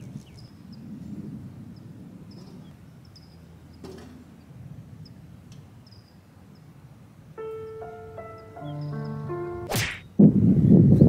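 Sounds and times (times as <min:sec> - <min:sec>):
short high chirps: 0:07.5 - 0:09.8
sharp knock: 0:09.7 - 0:10.1.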